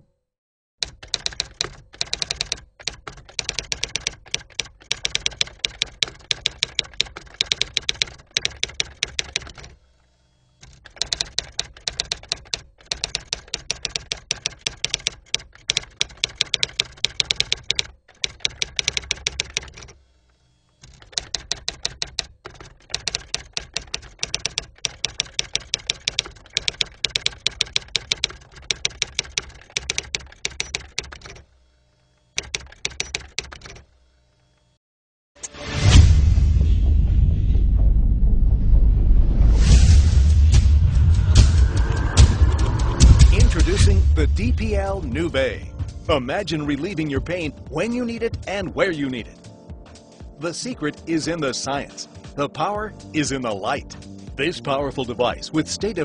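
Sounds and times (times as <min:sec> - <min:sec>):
typewriter key clicks: 0:00.8 - 0:09.8, 0:10.6 - 0:20.0, 0:20.8 - 0:31.4, 0:32.4 - 0:33.8.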